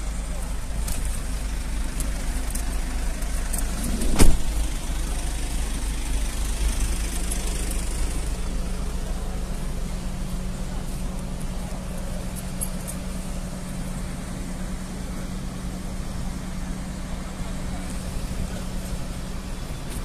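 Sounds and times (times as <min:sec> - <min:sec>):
fire engine rumble: 0:00.0 - 0:20.0
sharp thump: 0:03.9 - 0:04.6.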